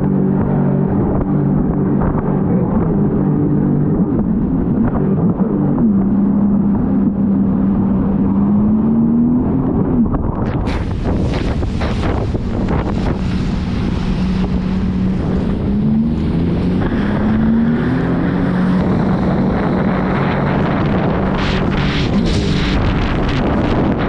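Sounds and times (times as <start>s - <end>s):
water rushing against hull: 0.0s - 24.0s
wind buffeting microphone: 0.0s - 24.0s
jet ski engine running: 9.6s - 24.0s.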